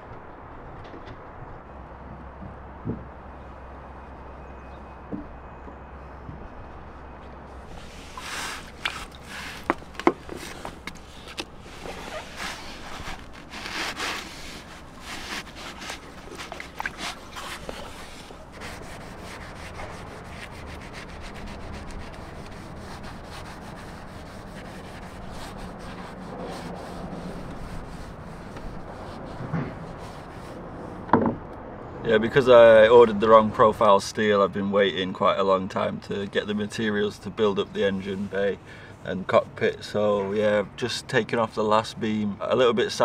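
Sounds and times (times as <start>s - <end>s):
scouring pad scrubbing: 7.5s - 30.8s
paint scraper rasping on wood: 7.6s - 30.7s.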